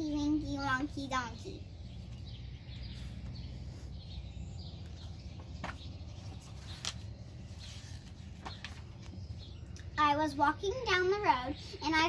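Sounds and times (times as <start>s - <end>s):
birds chirping: 0.0s - 12.0s
book pages rustling: 5.5s - 9.4s.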